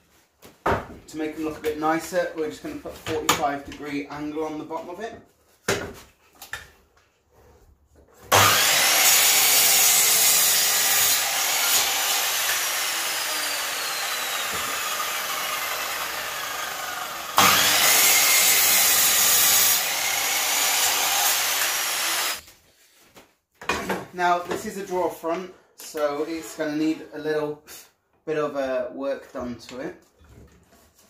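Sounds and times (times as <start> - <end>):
miter saw cutting wood: 8.3 - 22.4.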